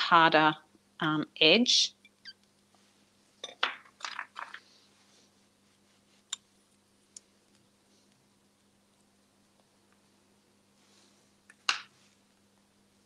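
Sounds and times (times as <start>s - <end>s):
hands working soft clay: 4.6s - 6.8s.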